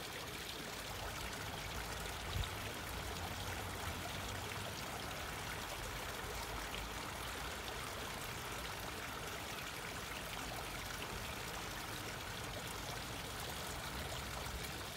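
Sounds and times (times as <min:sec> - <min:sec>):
small waterfall splashing into pond: 0:00.0 - 0:14.9.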